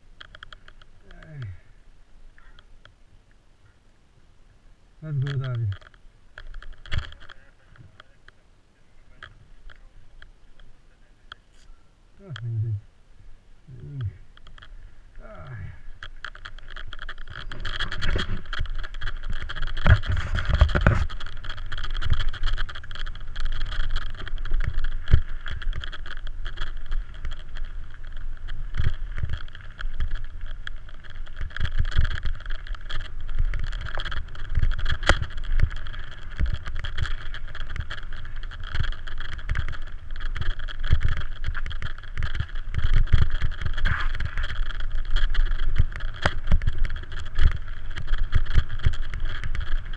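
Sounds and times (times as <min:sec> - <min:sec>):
bike rattles and knocks: 0:00.0 - 0:01.6, 0:05.2 - 0:08.4, 0:14.0 - 0:49.9
tyres rumbling on gravel: 0:13.8 - 0:49.9.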